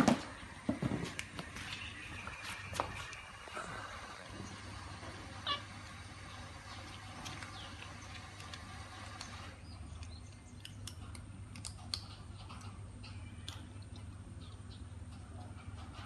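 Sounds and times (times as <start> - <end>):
low steady hum: 0.0 - 16.0
cat crunching dry kibble: 7.1 - 12.8.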